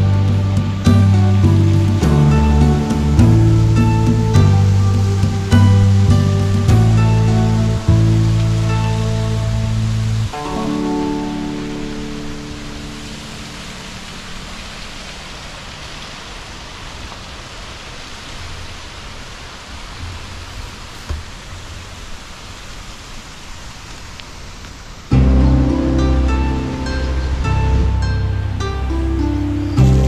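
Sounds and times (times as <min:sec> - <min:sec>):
faint low thumps: 0:00.0 - 0:10.3
music: 0:00.0 - 0:14.3, 0:25.1 - 0:30.0
running water rushing: 0:00.0 - 0:30.0.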